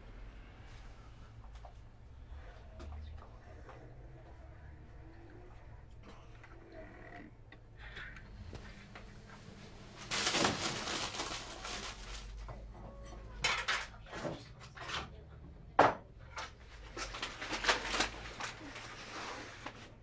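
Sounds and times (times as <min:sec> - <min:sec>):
rustling scrape: 0:09.6 - 0:12.5, 0:16.8 - 0:20.0
knocks and clinks of objects: 0:12.7 - 0:14.4.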